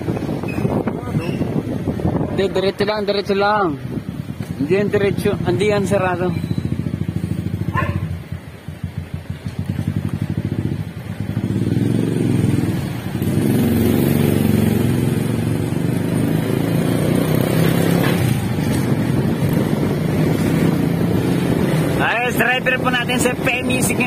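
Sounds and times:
motorcycle engine running: 0.1s - 24.0s.

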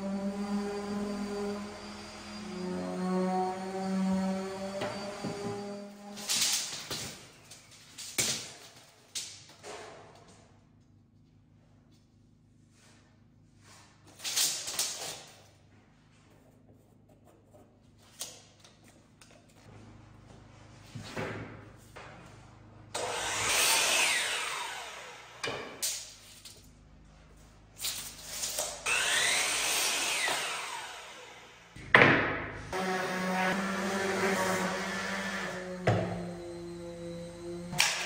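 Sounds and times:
miter saw cutting wood: 0.0s - 6.5s, 22.9s - 25.8s, 28.4s - 31.8s, 32.6s - 38.0s.

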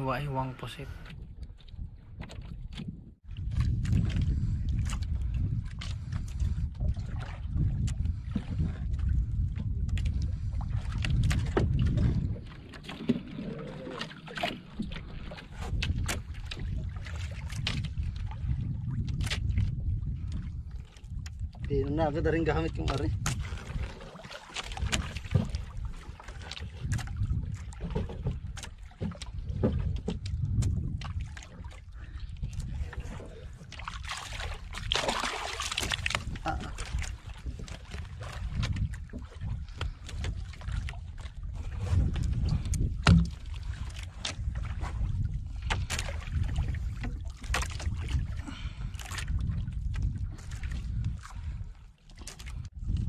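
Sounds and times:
water lapping against boat: 0.0s - 53.0s
wind rumbling on microphone: 0.0s - 53.0s
sharp knocks and slaps: 43.0s - 43.4s.

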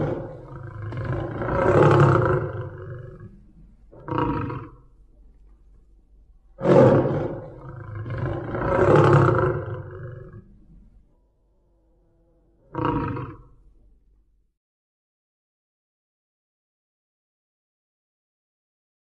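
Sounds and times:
tiger roaring: 0.0s - 4.9s, 6.6s - 10.8s, 11.8s - 13.6s.

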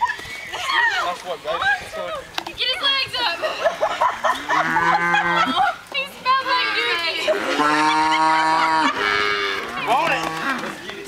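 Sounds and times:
calf mooing: 7.3s - 10.7s.

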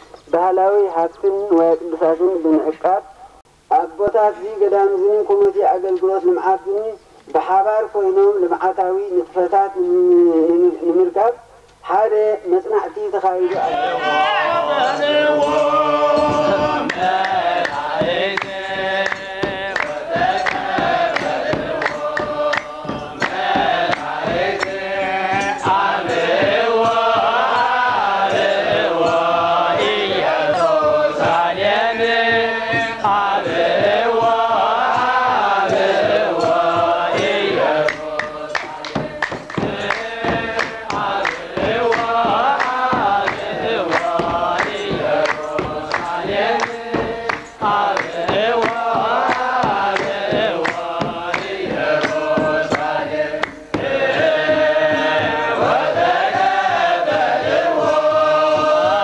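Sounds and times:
drum strikes: 13.4s - 59.0s
men chanting together: 13.4s - 59.0s
hand claps: 14.5s - 59.0s.

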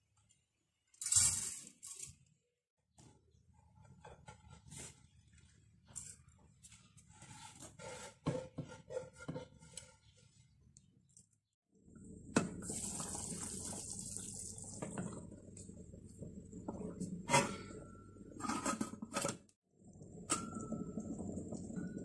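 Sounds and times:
broth boiling and hissing: 12.0s - 17.4s.

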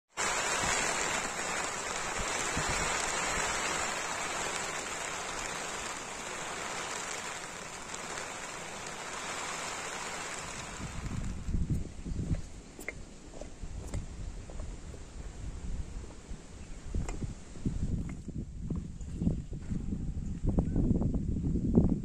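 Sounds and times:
steady rain falling: 0.1s - 11.8s.

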